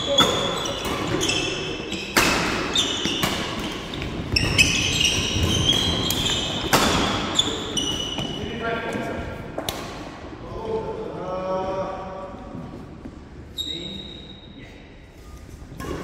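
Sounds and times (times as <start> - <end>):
shoes squeaking on wooden floor: 0.0 - 8.6
racket hitting shuttlecock: 2.0 - 7.4.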